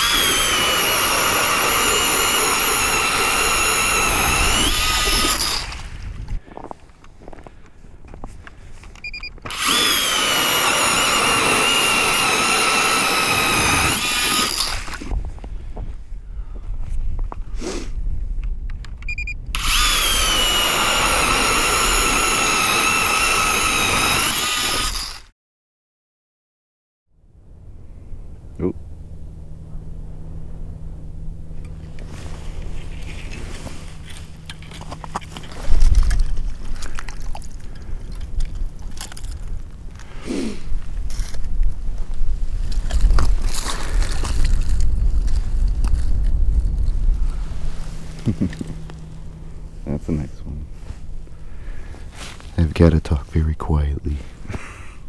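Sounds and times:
ice auger motor whining: 0:00.0 - 0:06.0, 0:09.1 - 0:15.1, 0:19.5 - 0:25.3
short beep: 0:19.1 - 0:19.4
ice cleats crunching on snowy ice: 0:42.1 - 0:46.8.

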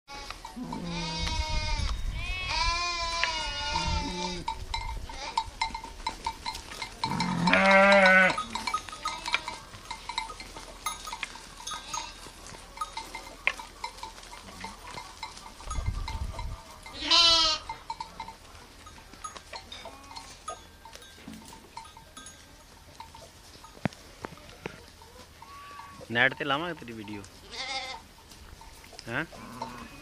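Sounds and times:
sheep bleating: 0:00.1 - 0:04.5, 0:07.0 - 0:09.6, 0:16.9 - 0:17.8, 0:27.4 - 0:28.0, 0:29.3 - 0:30.0.

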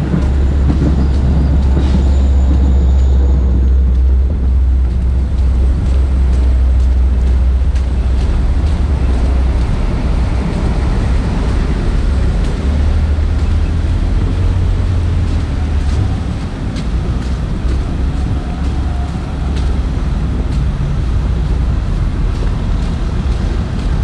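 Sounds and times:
road traffic noise: 0:00.0 - 0:24.0
wind buffeting microphone: 0:00.0 - 0:24.0.

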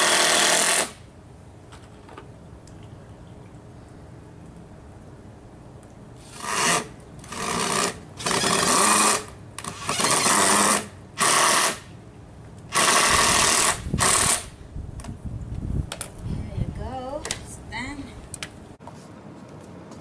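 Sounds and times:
cordless drill driving a screw: 0:06.2 - 0:11.8, 0:12.7 - 0:14.5.

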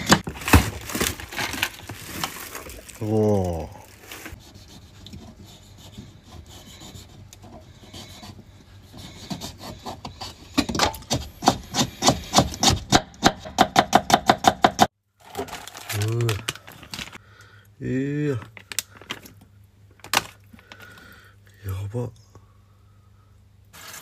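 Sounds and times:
knife scraping a carrot: 0:04.3 - 0:12.9
knife chopping on wooden board: 0:10.6 - 0:14.9.

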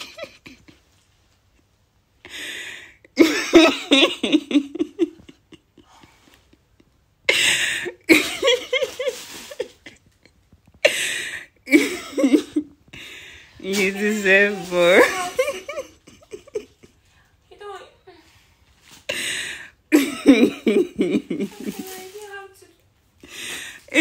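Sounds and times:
person laughing and coughing: 0:10.8 - 0:12.7.

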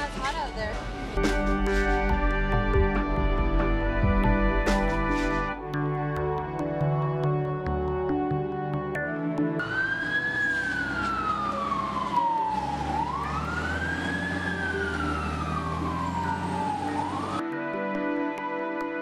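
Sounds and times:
soft ambient music: 0:00.0 - 0:19.0
fire engine siren wailing: 0:09.2 - 0:17.8.

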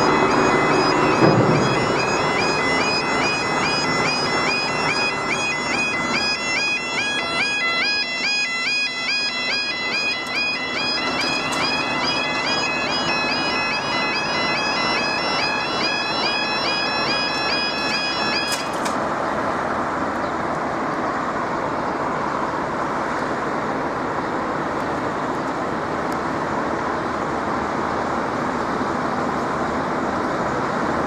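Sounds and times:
level crossing electronic alarm: 0:00.0 - 0:19.4.

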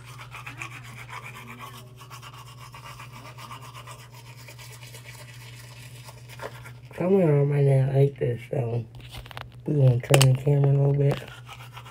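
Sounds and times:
toothbrush scrubbing teeth: 0:00.0 - 0:07.5, 0:10.9 - 0:11.9.

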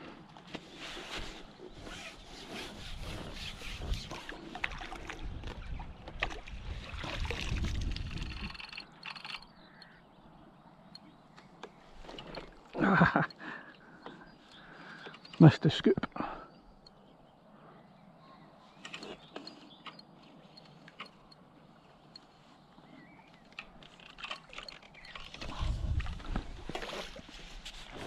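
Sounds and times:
water splashing and sloshing: 0:00.4 - 0:09.2, 0:11.5 - 0:13.1, 0:23.3 - 0:28.0.

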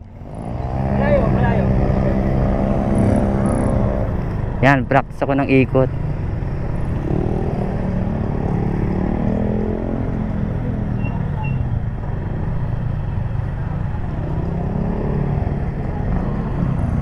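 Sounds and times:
wind and road rumble: 0:00.0 - 0:17.0
scooter engine revving: 0:00.2 - 0:04.4.

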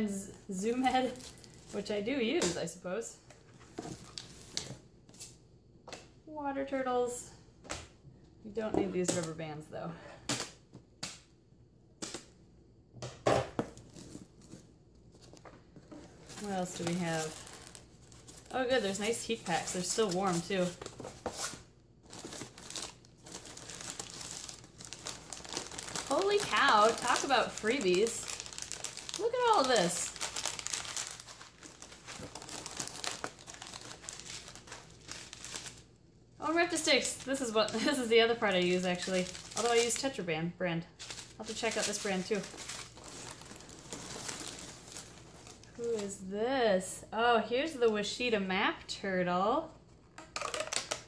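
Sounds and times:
paper and cardboard rustling: 0:13.6 - 0:35.8, 0:36.4 - 0:40.2, 0:41.0 - 0:46.1.

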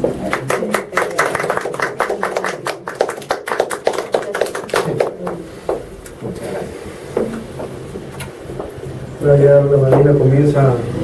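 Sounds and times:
people applauding: 0:00.0 - 0:05.5.

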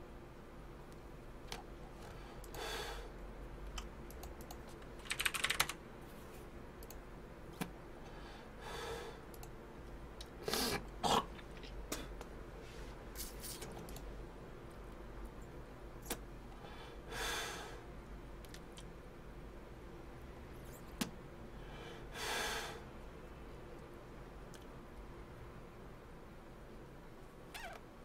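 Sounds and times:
keyboard typing: 0:03.8 - 0:05.8.

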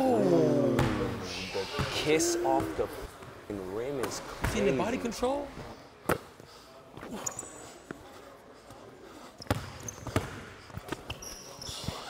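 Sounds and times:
basketball bouncing: 0:00.8 - 0:01.0, 0:09.5 - 0:10.4
shoe squeaks: 0:07.1 - 0:07.8, 0:09.4 - 0:10.2, 0:10.9 - 0:12.0.

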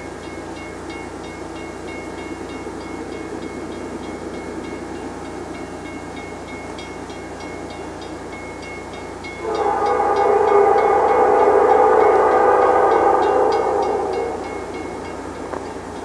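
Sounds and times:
diesel freight train rumbling: 0:00.0 - 0:16.0
locomotive air horn chord: 0:08.9 - 0:16.0.

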